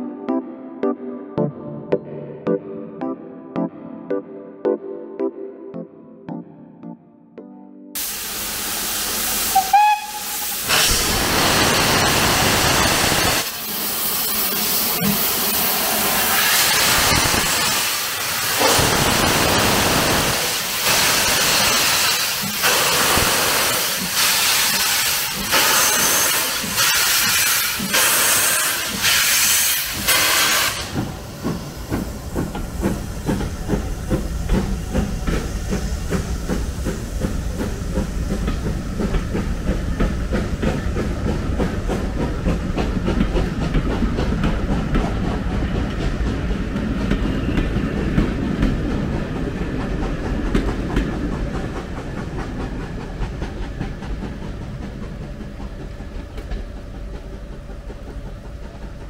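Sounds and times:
steam hissing in heavy beats: 8.0 - 59.0
steam locomotive whistle: 9.4 - 11.1, 24.2 - 30.9
train wheels clattering over rail joints: 16.1 - 59.0.

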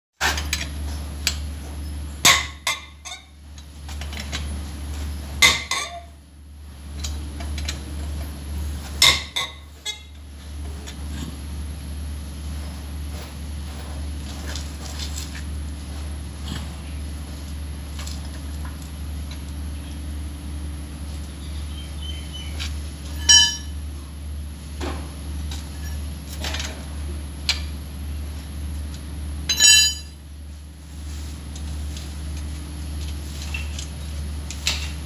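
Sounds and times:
steady low hum: 0.2 - 35.0
loud ringing clinks: 23.1 - 23.8, 29.5 - 30.2
metal tools clinking: 29.5 - 30.2.

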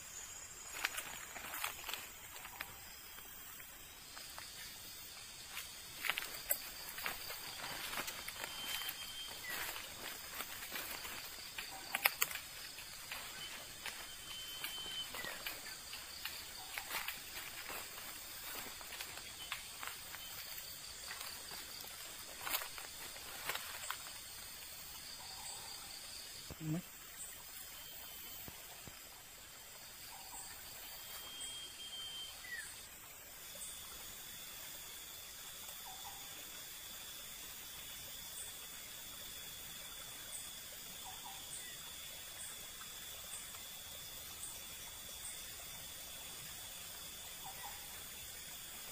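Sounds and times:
crackles of leaves and twigs: 0.0 - 25.7
steady outdoor hiss: 0.0 - 48.9.

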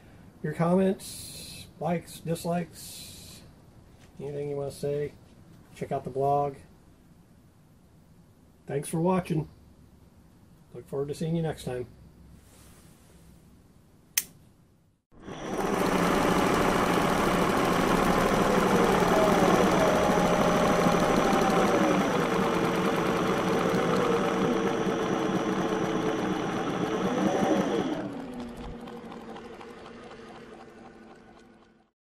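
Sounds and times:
machine running fast: 15.1 - 31.9.

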